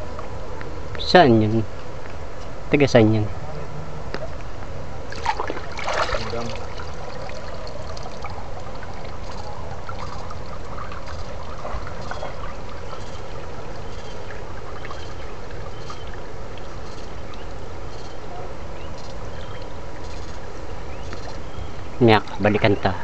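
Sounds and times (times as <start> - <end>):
steady low rumble: 0.0 - 23.0
person wading through water: 5.1 - 17.9
water trickling in a stream: 5.1 - 22.5.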